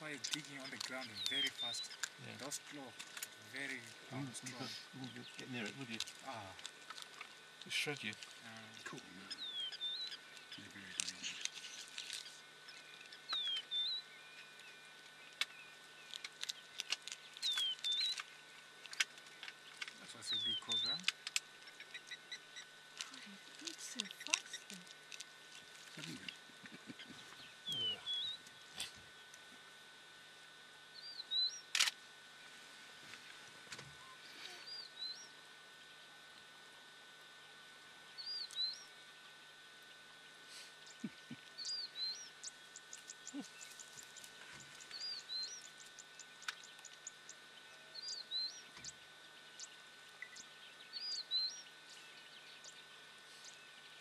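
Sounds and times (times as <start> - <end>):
animal crunching bones: 0.2 - 2.2, 15.4 - 20.0, 23.0 - 26.4.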